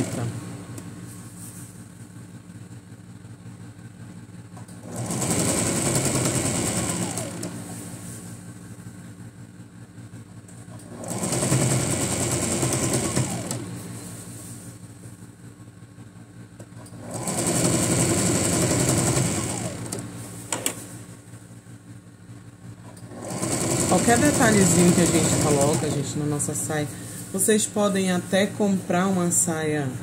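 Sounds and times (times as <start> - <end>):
sewing machine stitching: 0.0 - 0.6, 4.8 - 7.8, 10.7 - 14.0, 16.8 - 20.7, 22.8 - 26.3.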